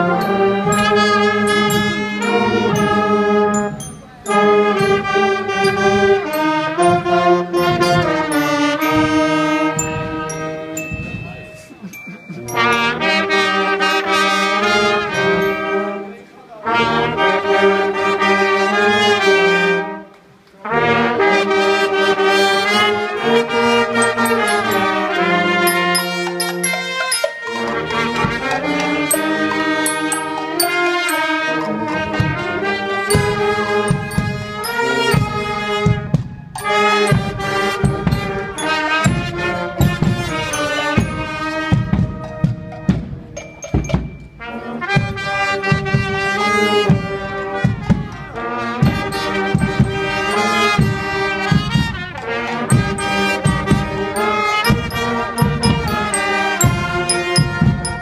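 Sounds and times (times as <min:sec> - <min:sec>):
steady drum beat: 0:00.0 - 0:13.0, 0:23.8 - 0:31.4, 0:32.0 - 0:44.4, 0:45.0 - 0:58.0
street band playing wind instruments: 0:00.0 - 0:58.0.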